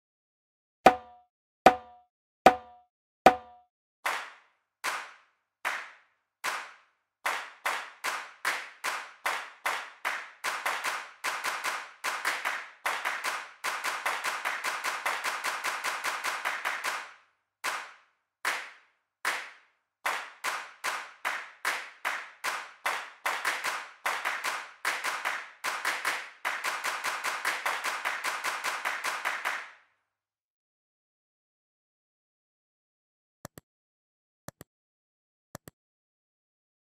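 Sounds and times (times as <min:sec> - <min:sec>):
person clapping hands: 0:04.1 - 0:29.8.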